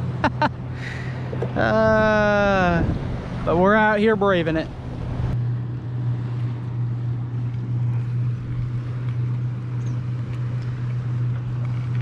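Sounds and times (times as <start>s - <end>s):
water noise: 0.0s - 12.0s
wind: 0.0s - 12.0s
electric motor humming: 4.2s - 12.0s.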